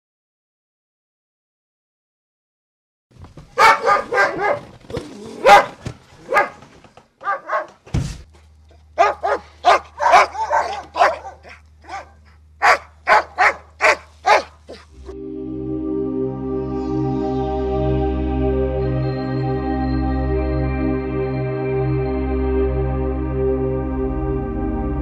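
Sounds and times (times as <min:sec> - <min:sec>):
dog barking: 0:03.6 - 0:04.7, 0:05.4 - 0:06.6, 0:07.2 - 0:07.8, 0:09.0 - 0:14.9.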